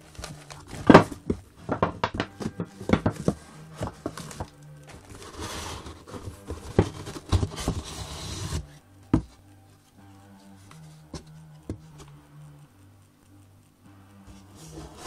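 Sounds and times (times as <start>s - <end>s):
plastic bags rustling: 0.0s - 7.9s
low steady hum: 0.0s - 15.0s.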